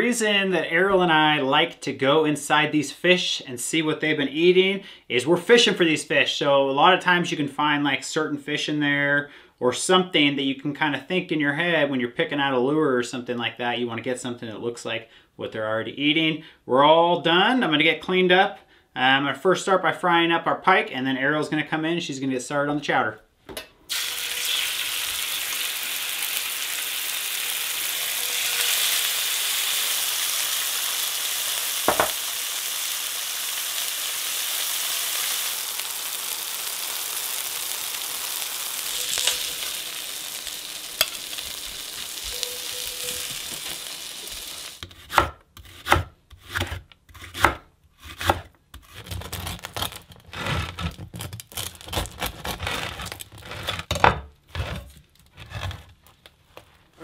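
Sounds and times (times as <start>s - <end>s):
fish sizzling in hot oil: 23.9s - 44.9s
bread knife sawing crust: 44.8s - 53.9s.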